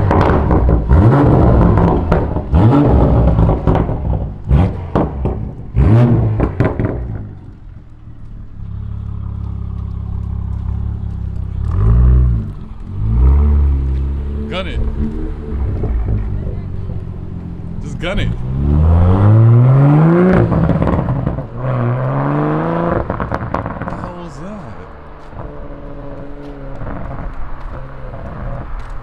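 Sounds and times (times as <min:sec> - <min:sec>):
car engine revving: 0:00.0 - 0:29.0
exhaust pops: 0:00.0 - 0:29.0.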